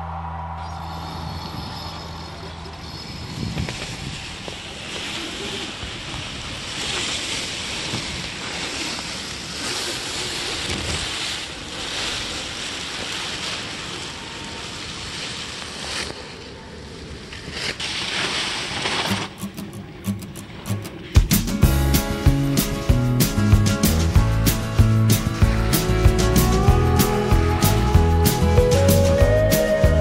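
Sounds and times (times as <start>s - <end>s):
wind buffeting microphone: 0.1s - 17.3s
water rushing along hull: 2.0s - 16.1s, 20.4s - 30.0s.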